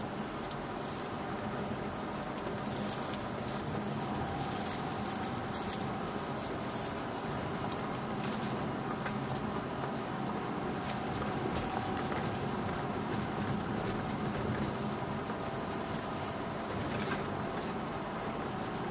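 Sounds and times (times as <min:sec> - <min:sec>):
car engine and tyre noise: 0:00.0 - 0:18.9.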